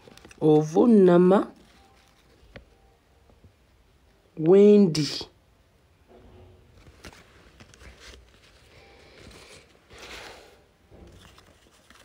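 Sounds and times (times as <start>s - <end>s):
paper rustling: 0.0s - 0.6s, 1.6s - 2.7s, 6.7s - 12.0s.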